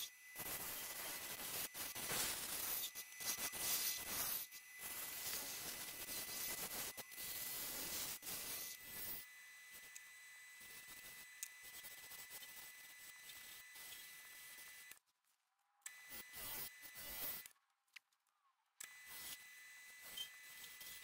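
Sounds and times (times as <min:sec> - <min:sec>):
lathe tool scraping wood: 0:00.0 - 0:09.9.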